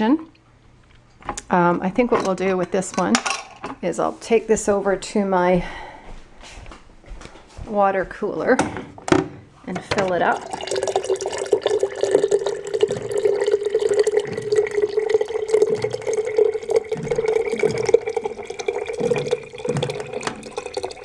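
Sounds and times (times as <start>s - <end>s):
dispenser hum: 0.0s - 6.3s, 7.8s - 21.0s
water pouring into glass jar: 10.0s - 21.0s.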